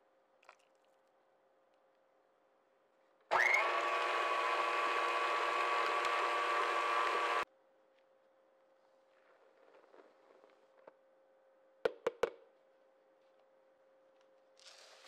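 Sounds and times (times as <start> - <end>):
electric stand mixer whirring: 3.3 - 7.4.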